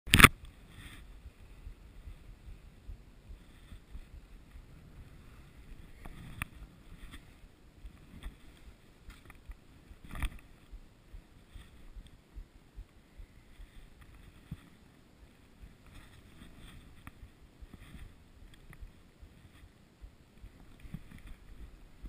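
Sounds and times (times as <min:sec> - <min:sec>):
faint low thumps: 0:01.0 - 0:07.2, 0:07.8 - 0:14.4.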